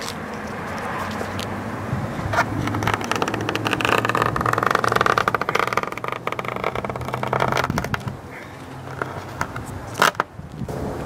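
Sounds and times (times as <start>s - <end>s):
razor blade scraping sticky tape: 2.4s - 8.2s.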